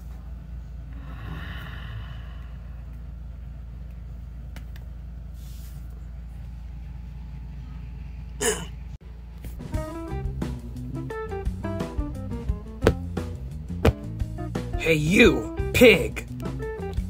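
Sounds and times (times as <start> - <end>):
low hum: 0.0 - 5.2
breathy voice burst: 0.9 - 2.9
plucked music: 9.6 - 17.0.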